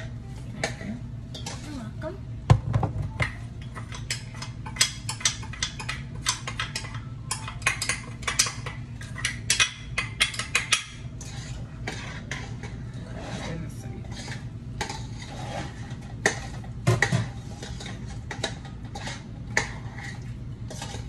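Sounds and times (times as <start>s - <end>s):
steady low hum: 0.0s - 21.0s
metal utensil scraping a pot: 3.7s - 21.0s.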